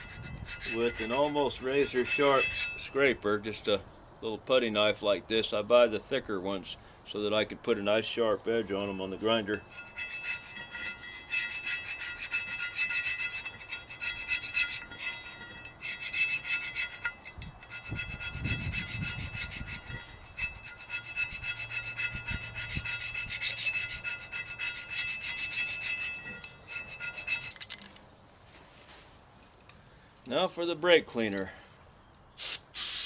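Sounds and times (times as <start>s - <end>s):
blade squealing: 0.0s - 3.1s, 9.6s - 27.6s
putty knife scraping metal: 0.0s - 3.2s, 9.5s - 27.9s.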